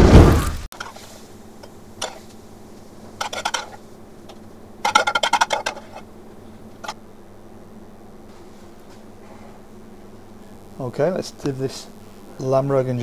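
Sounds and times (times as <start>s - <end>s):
metal utensil scraping a pan: 3.2s - 3.8s.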